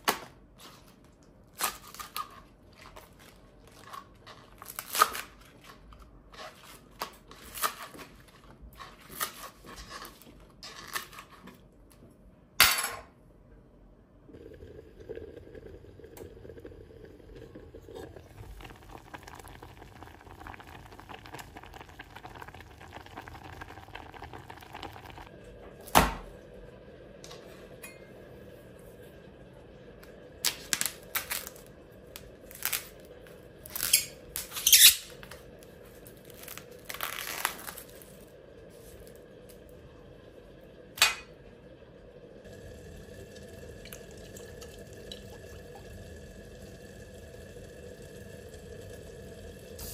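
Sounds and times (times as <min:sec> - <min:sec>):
knife tearing plastic cling film: 0:03.7 - 0:05.8, 0:06.4 - 0:08.2, 0:36.3 - 0:38.1
steady low hum: 0:11.6 - 0:34.5, 0:35.1 - 0:49.9.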